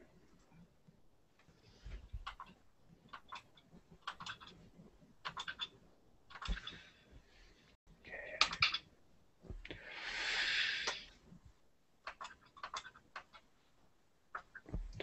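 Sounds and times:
computer mouse clicks: 2.2 - 4.5, 5.2 - 5.7, 12.0 - 13.5
soft breathy rush of noise: 9.6 - 11.4.

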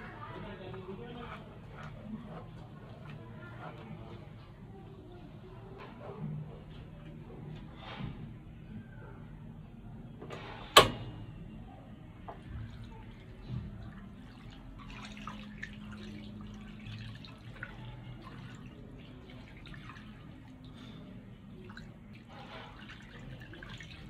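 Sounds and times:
water pouring into a wok: 12.8 - 24.0.

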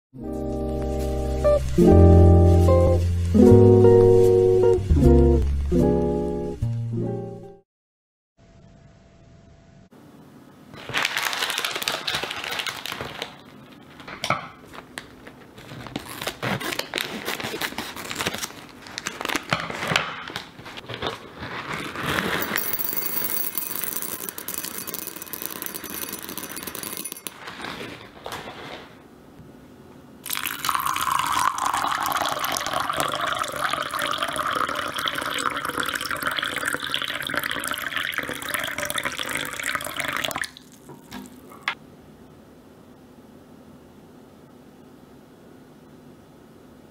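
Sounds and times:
plastic pack crinkling: 10.8 - 22.9
pearls rattling into glass cup: 22.4 - 27.4
water pouring: 30.3 - 41.5.

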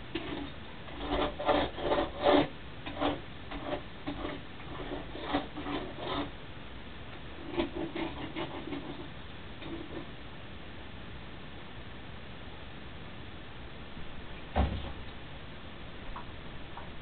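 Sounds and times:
rubbing and scraping strokes: 0.0 - 6.4, 7.4 - 10.1.

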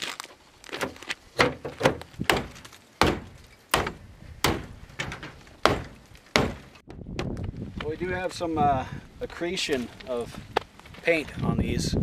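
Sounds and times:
tomahawk striking sheet metal: 1.4 - 7.3.

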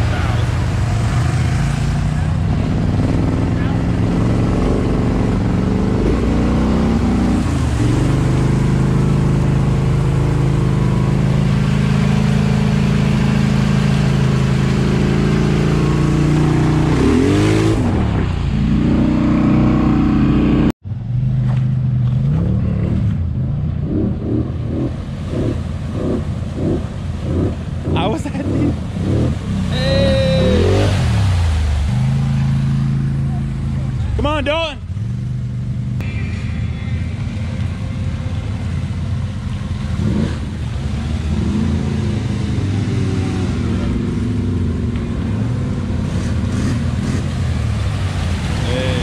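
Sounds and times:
water splashing: 0.0 - 19.8, 22.0 - 49.0
quad engine revving in pulses: 0.0 - 20.7, 23.8 - 33.9.

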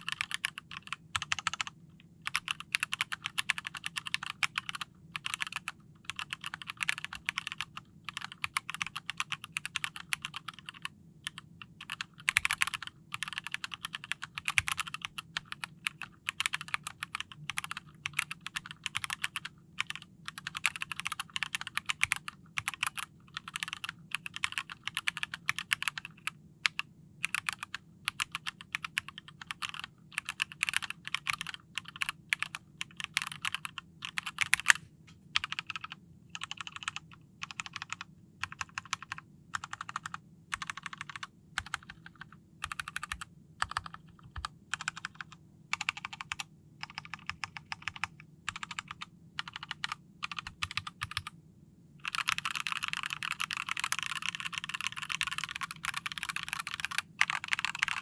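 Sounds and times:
mechanical keyboard typing: 0.0 - 34.8, 35.4 - 51.4, 52.0 - 58.0.

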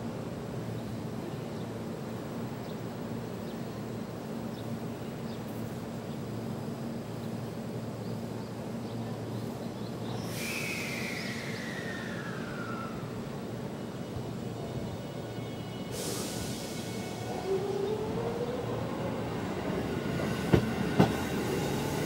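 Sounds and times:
air brakes hissing: 10.2 - 13.2, 15.9 - 17.4
electric train humming: 10.2 - 22.0.

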